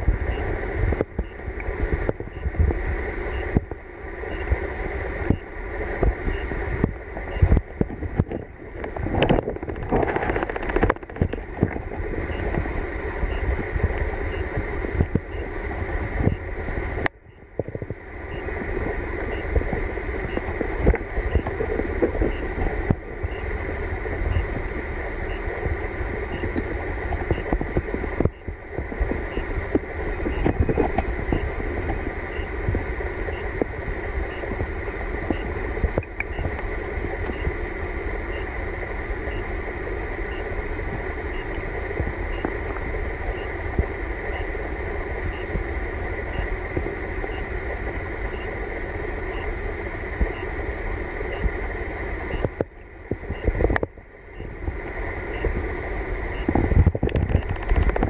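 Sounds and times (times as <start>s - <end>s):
underwater stream rushing: 0.0s - 58.0s.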